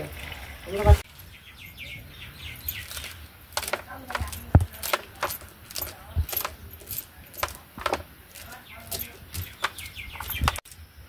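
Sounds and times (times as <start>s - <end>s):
small hard objects clinking: 2.5s - 10.8s.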